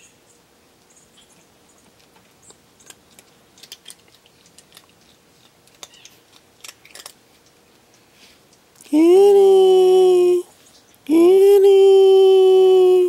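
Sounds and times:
cat crunching dry food: 2.0s - 8.6s.

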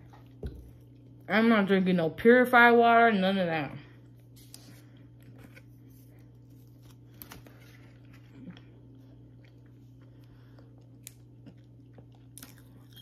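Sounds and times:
steady low hum: 0.0s - 13.0s
chewing with mouth closed: 8.1s - 13.0s.

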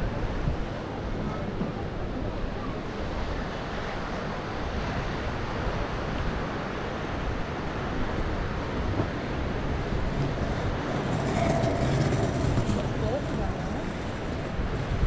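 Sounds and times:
wind on microphone: 7.3s - 15.0s
surf washing onto rocks: 9.0s - 15.0s.

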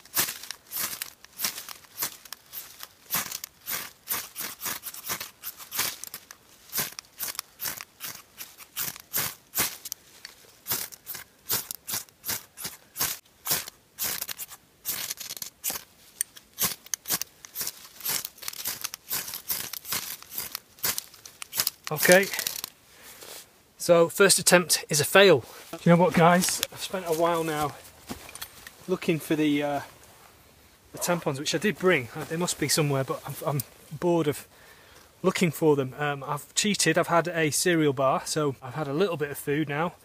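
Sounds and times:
striker scraping fire steel: 0.0s - 23.5s.

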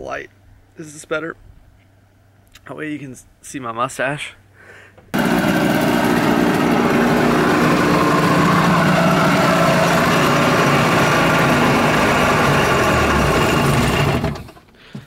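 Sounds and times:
engine droning steadily: 5.2s - 14.6s.

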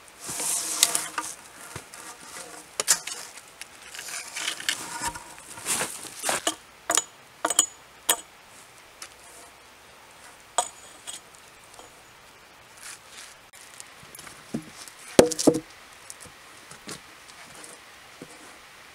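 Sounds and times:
sharp knocks with metallic ring: 6.5s - 8.3s.

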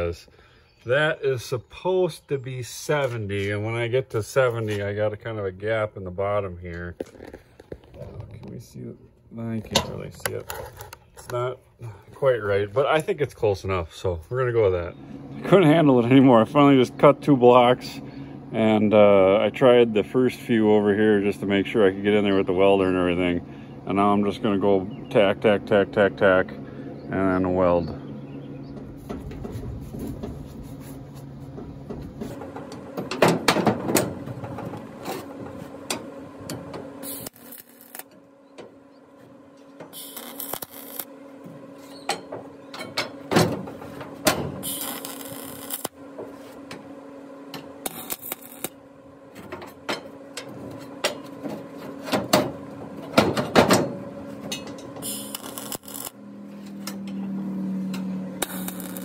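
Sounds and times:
faint steady hum: 0.0s - 59.0s
welder arc crackle: 34.7s - 38.3s, 39.6s - 41.2s, 43.0s - 46.7s, 47.5s - 48.9s, 54.8s - 56.9s, 57.8s - 59.0s.

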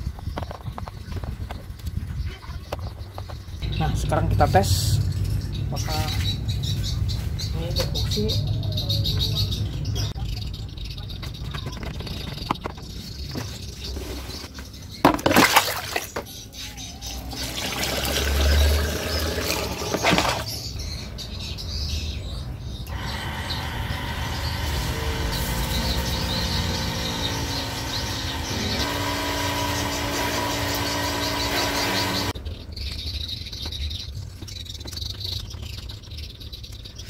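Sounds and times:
pump running: 17.4s - 20.5s, 22.9s - 32.4s.

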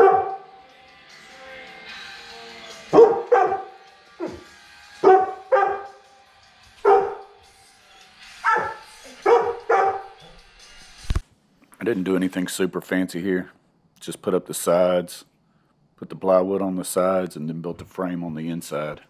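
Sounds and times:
large dog barking: 0.0s - 0.5s, 2.9s - 6.0s, 6.8s - 7.4s, 8.4s - 10.2s.

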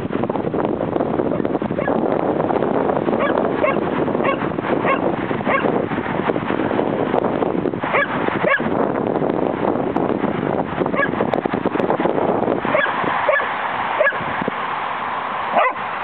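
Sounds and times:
wind noise on microphone: 0.0s - 16.0s
dog whining: 15.6s - 15.8s.

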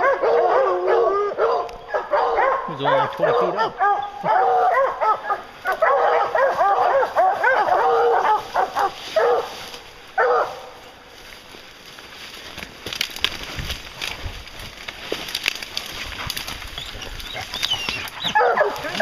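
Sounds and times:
hounds barking: 0.0s - 10.8s, 15.8s - 19.0s.

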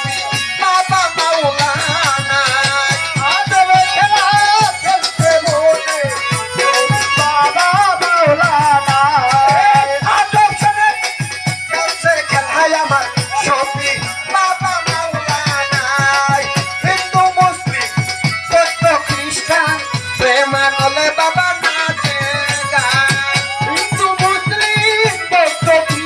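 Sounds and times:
fast drum beats: 0.0s - 26.0s.

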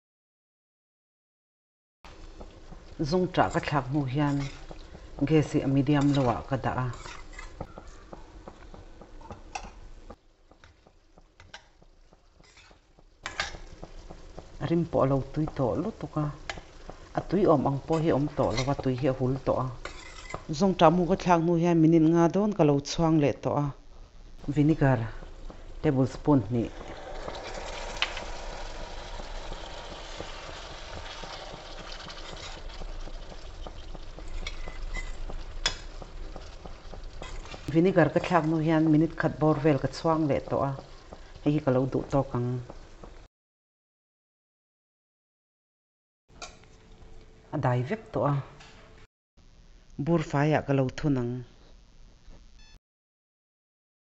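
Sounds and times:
food frying with crackling ticks: 2.1s - 6.2s, 7.0s - 21.0s, 26.7s - 43.3s
spatula scraping a wok: 2.5s - 7.7s, 10.6s - 14.6s, 16.4s - 20.6s, 26.7s - 38.5s.

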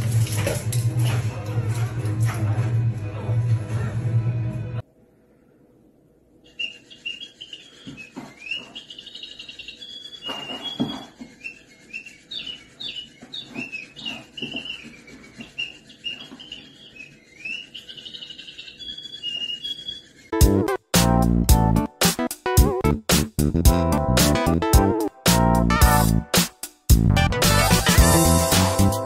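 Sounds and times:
bird-like chirping: 6.4s - 20.4s
loud music: 20.4s - 29.0s.

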